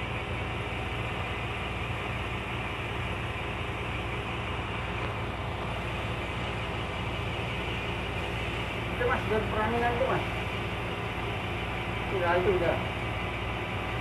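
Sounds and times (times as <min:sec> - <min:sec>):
constant low hum: 0:00.0 - 0:14.0.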